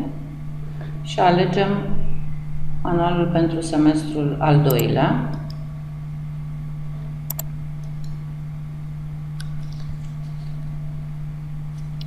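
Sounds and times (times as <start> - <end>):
low electrical hum: 0.0 - 12.0
computer mouse clicks: 7.3 - 8.2.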